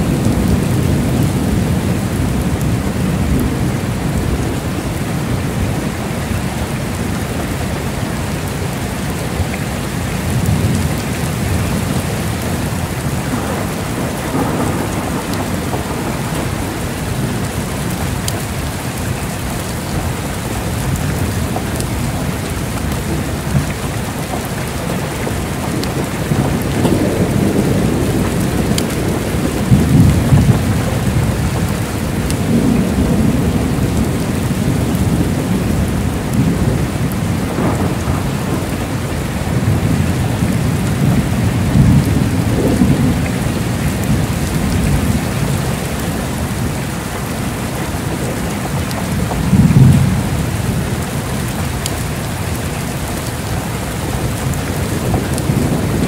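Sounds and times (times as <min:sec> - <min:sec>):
heavy rain falling: 0:00.0 - 0:56.0
thunder rumbling: 0:00.0 - 0:56.0.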